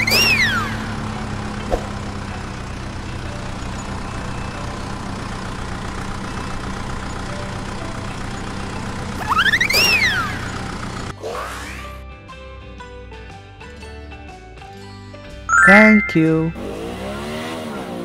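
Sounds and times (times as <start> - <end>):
engine idling hum: 0.0 - 11.1.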